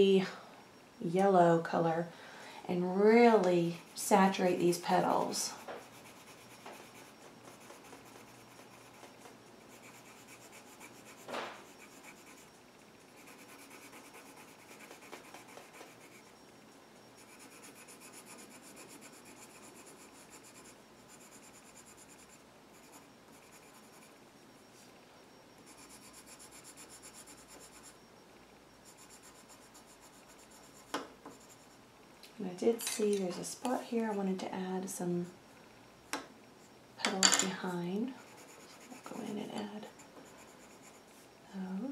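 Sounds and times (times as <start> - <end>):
pencil scratching on paper: 5.2 - 16.3, 17.2 - 24.1, 25.7 - 28.0, 28.9 - 31.8, 38.2 - 41.1.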